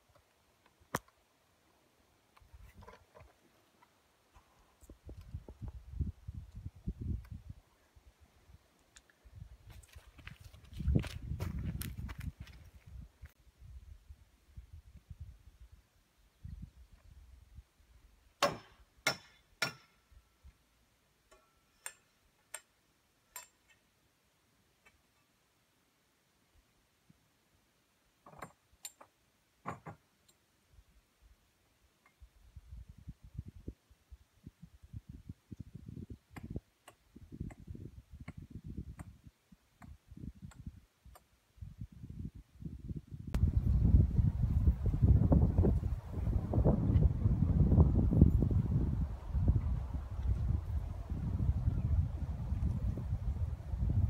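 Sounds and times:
wind rumble on microphone: 0:04.8 - 0:07.7, 0:09.2 - 0:15.8, 0:16.4 - 0:17.7, 0:32.4 - 0:40.8, 0:41.6 - 0:54.0.

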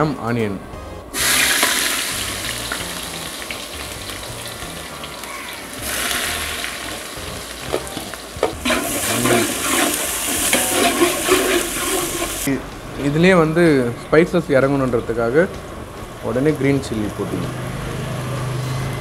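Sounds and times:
onions sizzling in hot oil: 0:01.2 - 0:12.5
metal ladle scraping a pot: 0:08.6 - 0:12.5.

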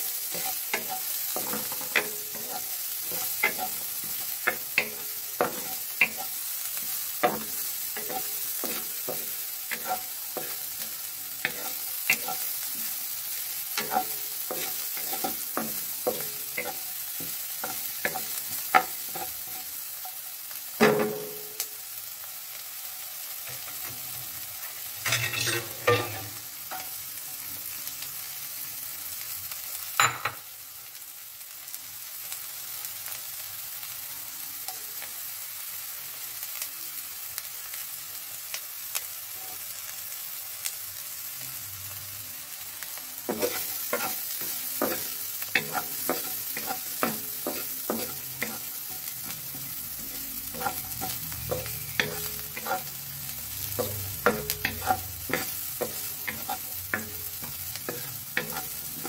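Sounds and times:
onion and garlic sizzling in a pan: 0:00.0 - 0:59.0
wooden spatula scraping a pan: 0:00.3 - 0:06.4, 0:07.2 - 0:12.9, 0:43.3 - 0:53.0, 0:53.8 - 0:59.0.

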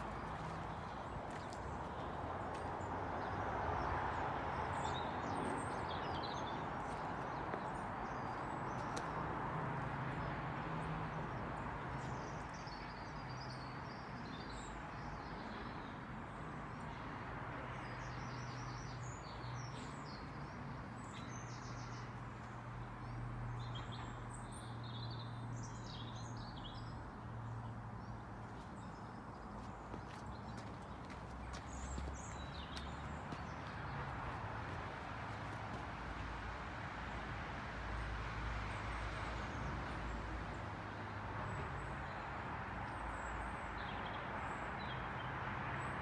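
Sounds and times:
small birds chirping: 0:17.8 - 0:35.8.

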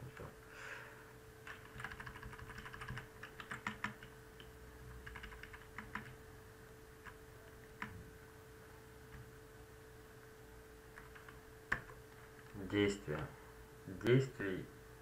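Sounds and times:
faint steady hum: 0:00.0 - 0:15.0
computer keyboard typing: 0:01.4 - 0:06.2, 0:07.0 - 0:08.0, 0:10.9 - 0:13.2.

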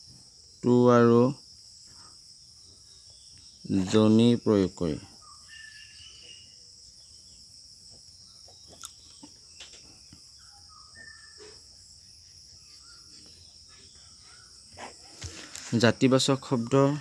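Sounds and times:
crickets chirring: 0:00.0 - 0:17.0.

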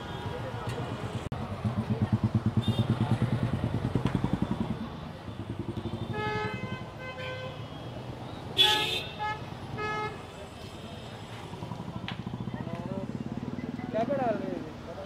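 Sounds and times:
motorcycle engine running: 0:01.3 - 0:06.8, 0:11.4 - 0:14.0
vehicle horns honking: 0:02.6 - 0:03.1, 0:05.8 - 0:07.7, 0:08.5 - 0:11.0.

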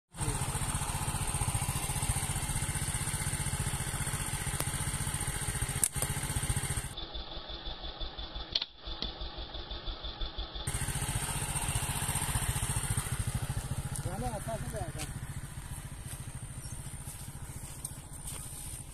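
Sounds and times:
small engine puttering: 0:00.1 - 0:18.9
sharp clicks: 0:05.7 - 0:06.2, 0:08.5 - 0:09.2.

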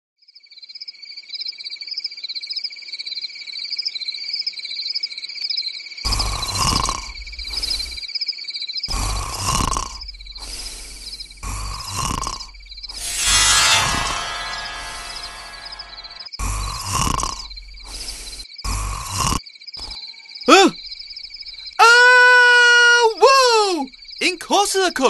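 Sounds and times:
crickets chirping: 0:00.4 - 0:25.0
man snoring: 0:06.1 - 0:08.0, 0:08.9 - 0:12.6, 0:16.4 - 0:20.8.

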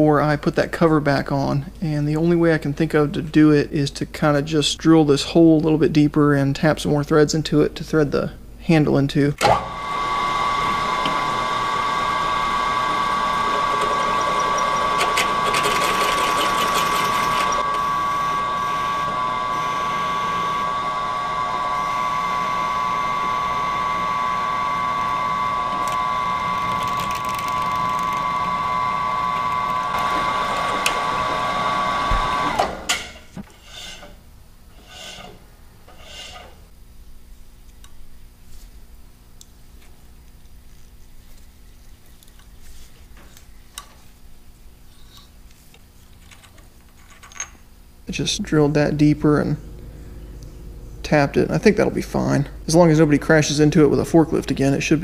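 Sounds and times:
high-pitched machine whine: 0:09.6 - 0:32.9, 0:48.0 - 0:55.0.

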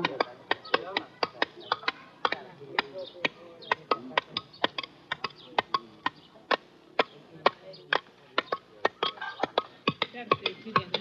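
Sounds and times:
hammer chipping stone: 0:03.7 - 0:11.0.

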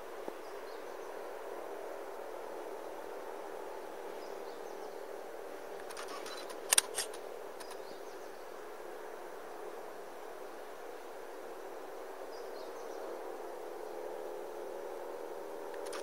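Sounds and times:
outdoor background noise: 0:00.0 - 0:16.0
cluster of sharp clicks: 0:05.8 - 0:07.8, 0:15.7 - 0:16.0
faint high bird chirps: 0:05.9 - 0:06.6.

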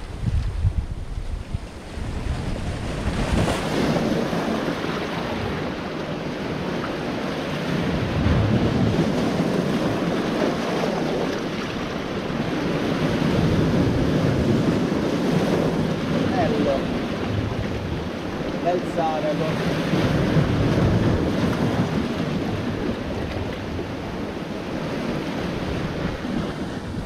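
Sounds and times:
surf breaking over rocks: 0:00.0 - 0:27.0
wind on microphone: 0:00.0 - 0:27.0.

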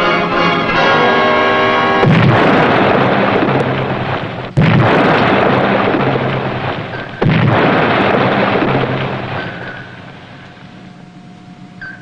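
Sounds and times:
depth charges exploding: 0:02.0 - 0:10.7.

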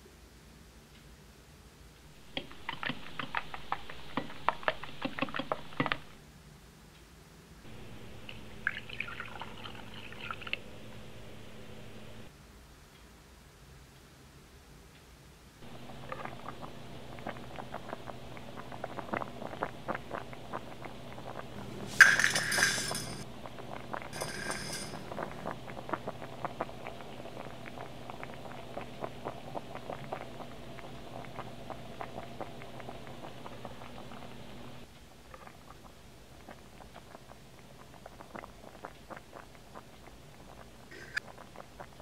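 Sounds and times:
low steady hum: 0:01.9 - 0:13.0, 0:15.6 - 0:42.0
water heating ticking and popping: 0:02.0 - 0:06.2, 0:07.7 - 0:12.3, 0:15.6 - 0:21.6, 0:23.2 - 0:42.0.

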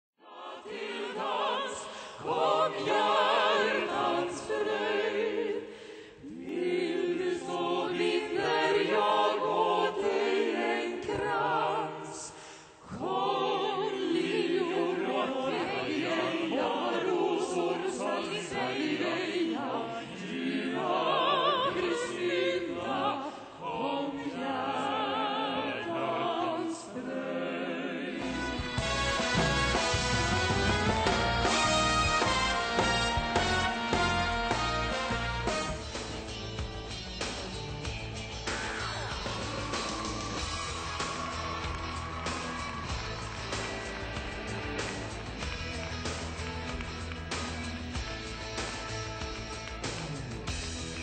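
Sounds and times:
choir singing: 0:00.2 - 0:35.9, 0:38.5 - 0:45.5
instrumental music with strong bass: 0:28.2 - 0:51.0.

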